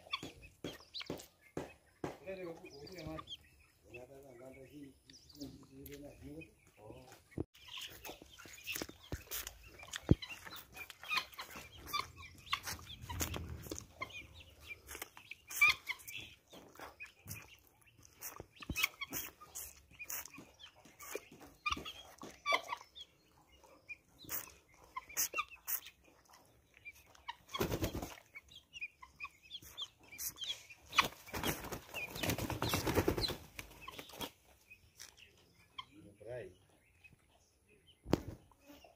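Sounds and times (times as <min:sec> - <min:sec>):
chicks chirping and clicking: 0:00.0 - 0:38.9
wings flapping: 0:27.6 - 0:28.2, 0:30.9 - 0:34.3.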